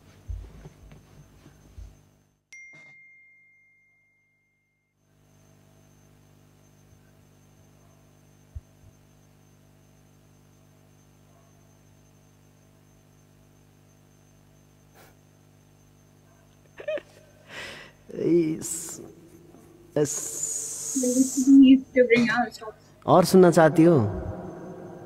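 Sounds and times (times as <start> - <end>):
faint steady hum: 0.0 - 25.0
bell-like ding: 2.5 - 4.9.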